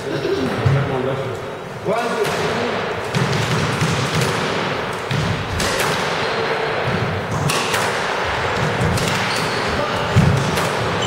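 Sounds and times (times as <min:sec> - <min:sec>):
squash ball hits: 0:02.2 - 0:11.0.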